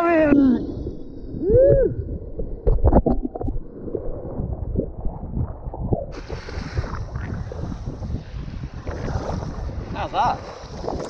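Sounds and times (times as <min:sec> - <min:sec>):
wind buffeting microphone: 0:00.0 - 0:11.0
surf hiss: 0:06.2 - 0:11.0.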